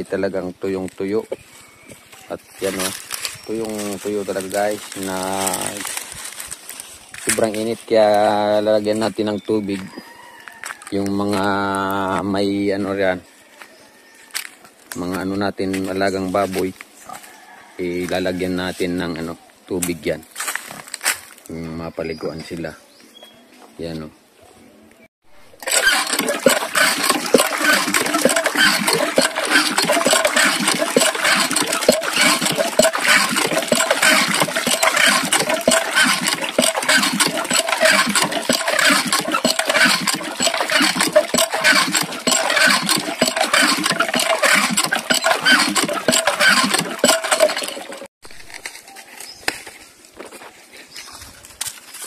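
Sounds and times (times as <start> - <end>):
water gushing from hose into bucket: 2.7 - 6.4, 25.6 - 48.1.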